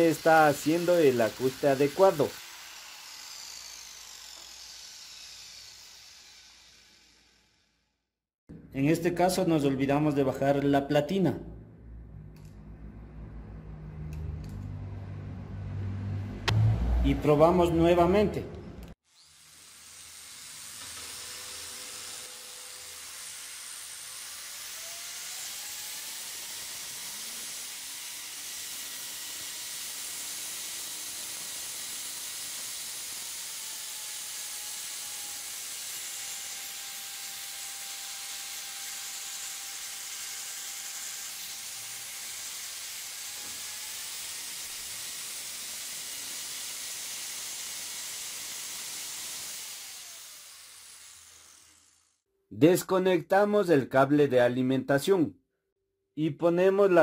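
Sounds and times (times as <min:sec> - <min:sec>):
angle grinder motor whine: 0:00.0 - 0:07.7, 0:19.1 - 0:27.5, 0:49.0 - 0:52.2.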